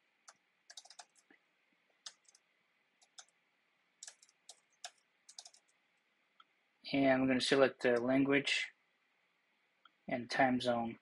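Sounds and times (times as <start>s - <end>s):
typing on computer keyboard: 0.2s - 1.3s, 2.0s - 2.4s, 3.0s - 3.4s, 4.0s - 5.8s.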